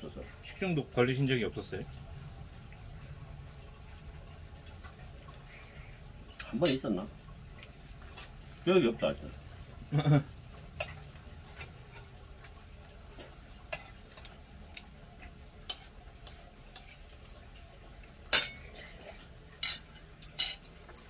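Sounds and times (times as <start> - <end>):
metal spoon clinking steel bowls: 18.3 - 18.7, 19.6 - 21.0.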